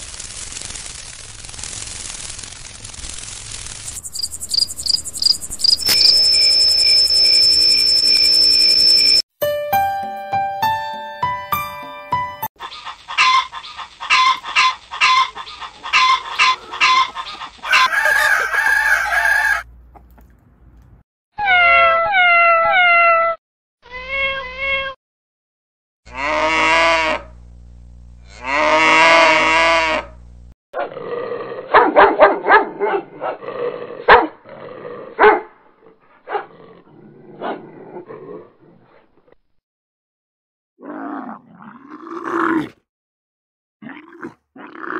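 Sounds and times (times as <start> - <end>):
animal calls: 12.6 - 18.2
cow mooing: 28.2 - 30.1.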